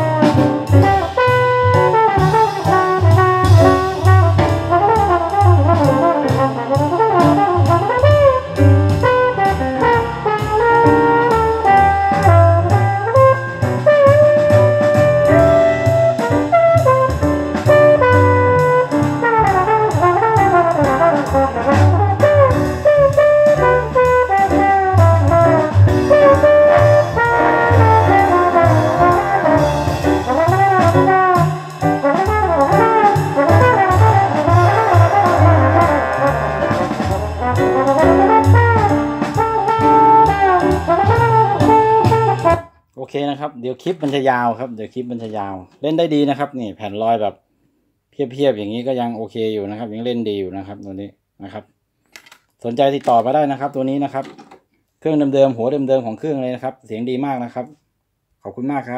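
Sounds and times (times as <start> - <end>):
brass-led jazz over loudspeakers: 0.0 - 42.8.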